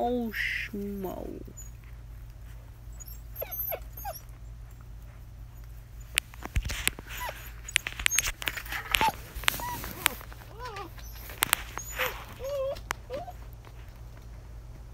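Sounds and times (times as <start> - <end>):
puppies whining and yipping: 0.0 - 13.7
sharp clicks and knocks: 6.0 - 14.9.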